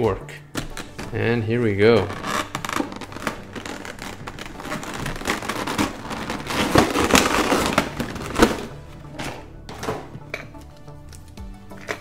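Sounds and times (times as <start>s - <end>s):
plastic packaging crinkling: 1.9s - 9.1s.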